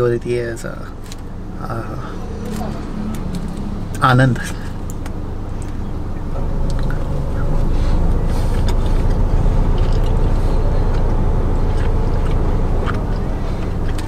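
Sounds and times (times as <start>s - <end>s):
car idling rumble: 0.0s - 14.0s
faint chewing clicks: 8.2s - 14.0s.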